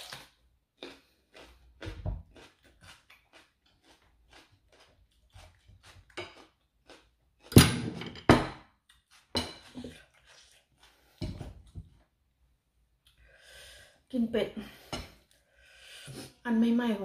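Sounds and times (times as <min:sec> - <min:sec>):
close-up chewing: 0:00.0 - 0:07.6, 0:08.8 - 0:12.1
dishes knocking on a table: 0:07.6 - 0:08.7.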